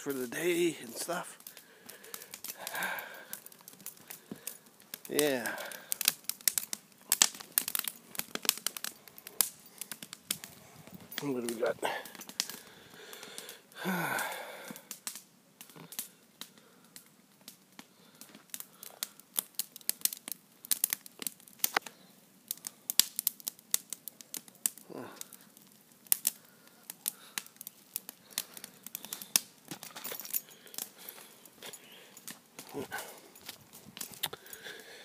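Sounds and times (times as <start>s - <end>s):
footsteps crunching on twigs: 29.1s - 34.6s.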